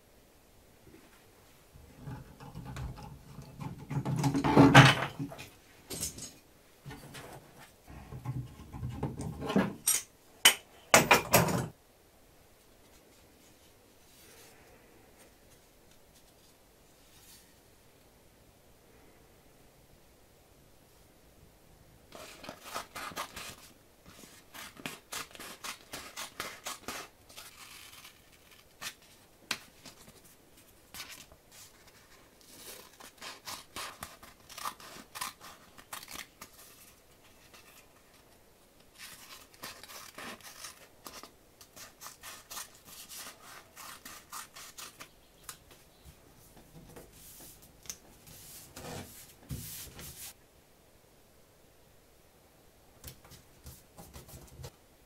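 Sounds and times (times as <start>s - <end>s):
scissors snipping paper: 22.2s - 29.7s, 32.4s - 36.9s, 38.9s - 45.6s.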